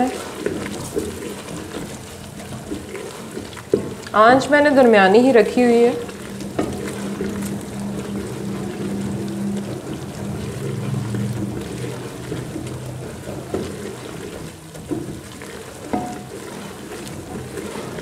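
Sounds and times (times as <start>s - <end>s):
spatula stirring and scraping: 0.0s - 18.0s
spatula knocking against pot: 15.9s - 16.3s.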